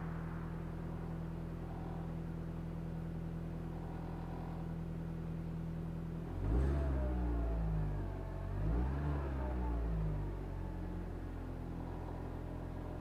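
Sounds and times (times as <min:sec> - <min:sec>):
car engine idling: 0:00.0 - 0:06.3.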